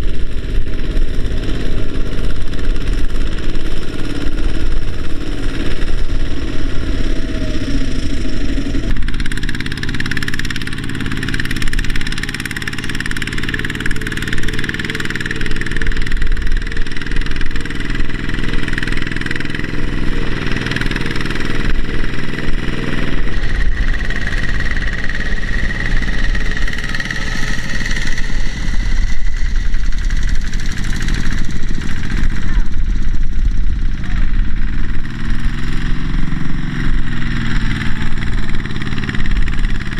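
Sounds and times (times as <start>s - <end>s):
diesel tractor engines running: 0.0s - 39.9s.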